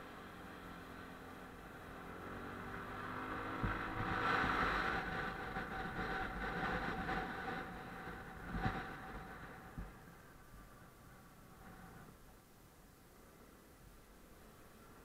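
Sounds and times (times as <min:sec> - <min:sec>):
motorcycle engine running: 0:00.0 - 0:10.9
wind and road noise: 0:00.0 - 0:15.0.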